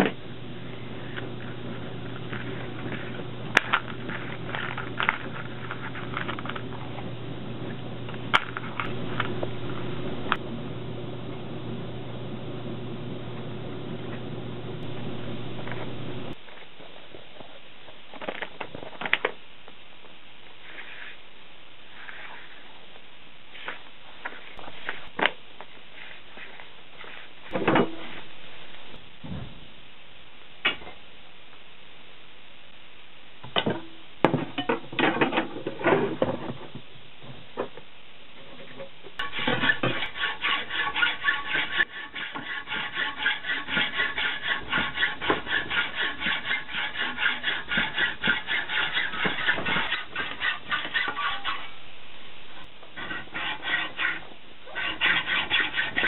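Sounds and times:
steady low hum: 0:00.0 - 0:56.0
fabric rustling and scraping: 0:20.6 - 0:21.2, 0:23.5 - 0:28.7.

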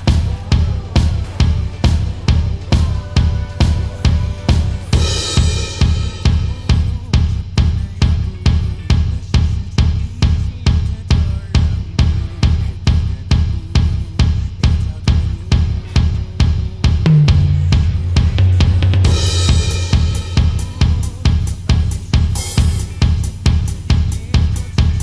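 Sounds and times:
faint song: 0:00.0 - 0:23.1
drum kit playing a beat: 0:00.0 - 0:25.0
cymbal crash: 0:01.0 - 0:06.7, 0:17.2 - 0:21.0.

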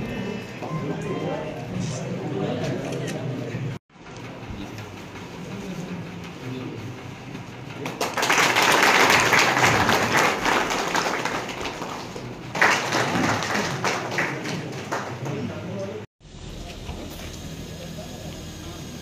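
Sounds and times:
people applauding: 0:07.8 - 0:16.1.

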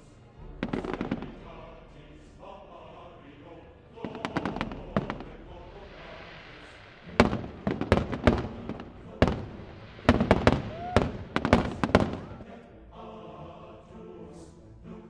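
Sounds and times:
music: 0:00.0 - 0:15.0
fireworks bursting: 0:00.6 - 0:01.6, 0:04.0 - 0:12.5.

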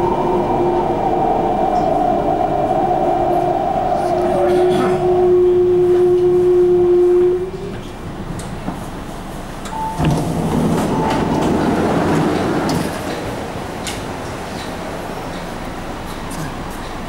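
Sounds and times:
loud rush of noise: 0:00.0 - 0:06.4.

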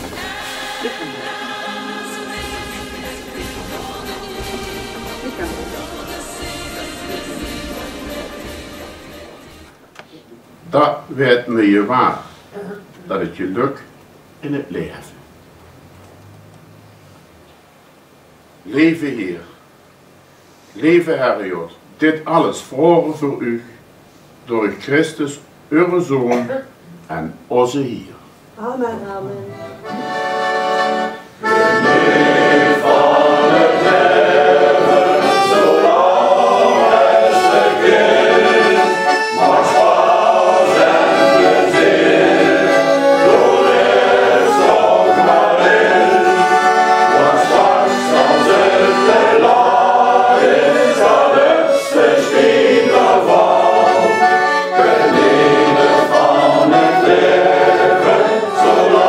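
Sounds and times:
accordion: 0:00.0 - 0:09.8, 0:29.4 - 0:59.0
men's choir singing: 0:00.0 - 0:09.8, 0:29.9 - 0:59.0.

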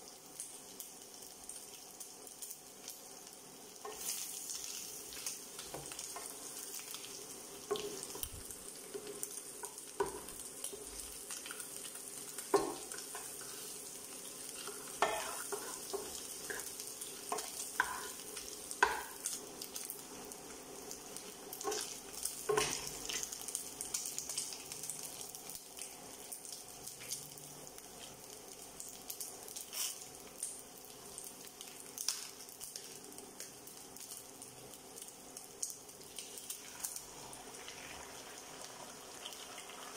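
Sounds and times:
fish sizzling in hot oil: 0:00.0 - 0:39.9
wooden spatula knocking on pan: 0:10.0 - 0:10.3, 0:12.5 - 0:12.9, 0:17.4 - 0:18.1, 0:18.8 - 0:19.2.

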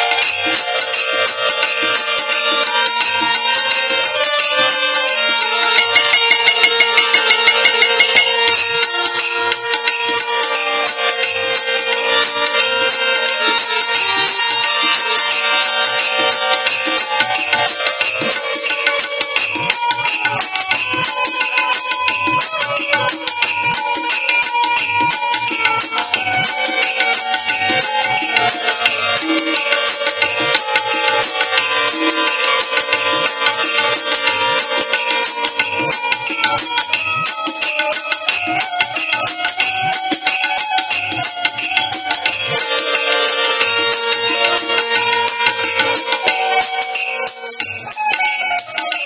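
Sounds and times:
held melody notes: 0:00.0 - 0:49.0
jingling hand percussion: 0:00.0 - 0:49.0.

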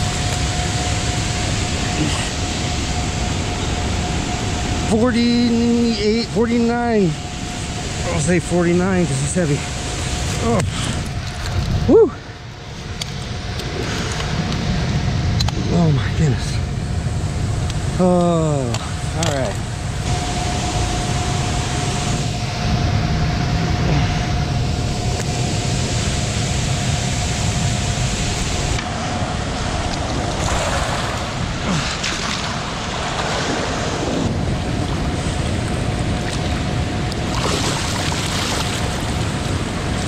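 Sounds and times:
wind buffeting microphone: 0:00.0 - 0:40.0
river water rushing: 0:28.2 - 0:40.0
water splashing: 0:29.6 - 0:40.0.

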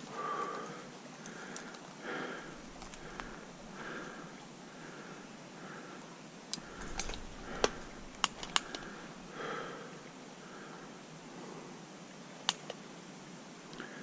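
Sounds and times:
steady background hiss: 0:00.0 - 0:14.0
sharp clicks and taps: 0:06.5 - 0:08.9.

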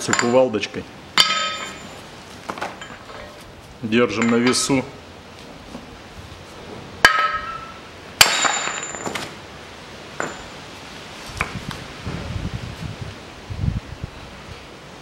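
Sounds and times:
sledgehammer ringing on metal: 0:01.2 - 0:02.0, 0:07.0 - 0:09.2.

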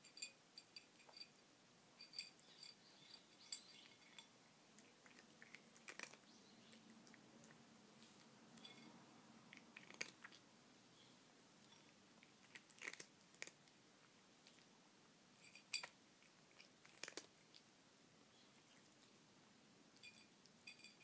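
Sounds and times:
cat chewing dry kibble: 0:04.7 - 0:10.5, 0:11.6 - 0:14.8, 0:15.6 - 0:17.7.

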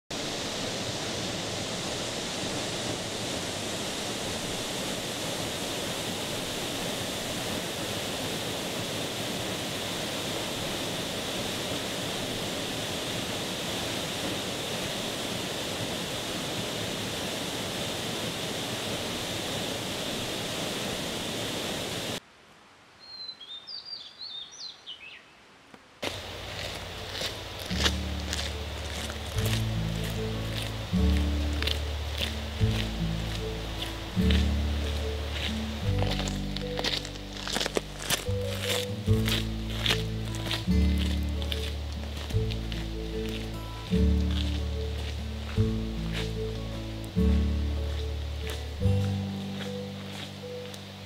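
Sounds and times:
waterfall roaring: 0:00.1 - 0:22.2, 0:26.0 - 0:51.0
small bird chirping: 0:23.0 - 0:25.4.

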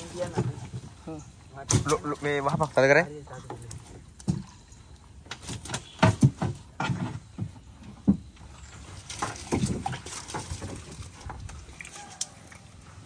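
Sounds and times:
water splashing: 0:08.4 - 0:13.0.

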